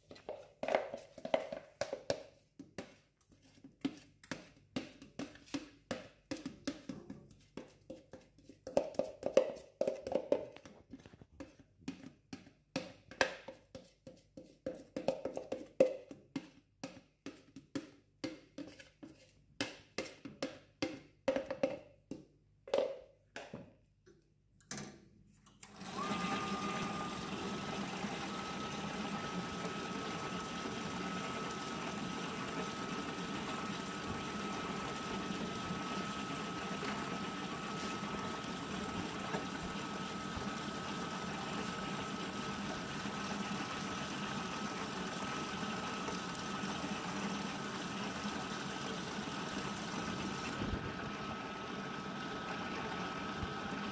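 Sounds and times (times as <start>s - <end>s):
dough mixer kneading dough: 25.6s - 53.9s
faint motor hum: 25.6s - 53.9s.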